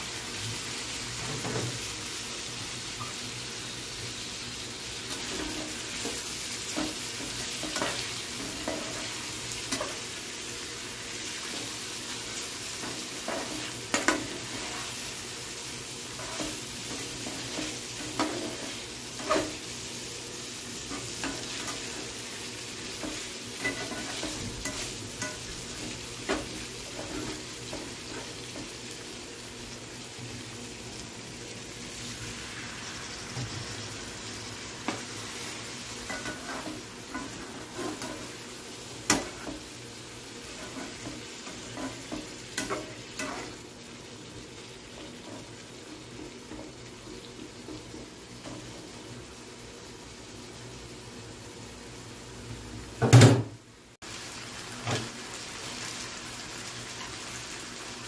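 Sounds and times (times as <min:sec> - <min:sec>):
chicken sizzling in a pan: 0:00.0 - 0:58.0
metal spatula scraping pan: 0:16.2 - 0:19.6, 0:23.0 - 0:28.4, 0:36.0 - 0:38.5, 0:40.5 - 0:43.6.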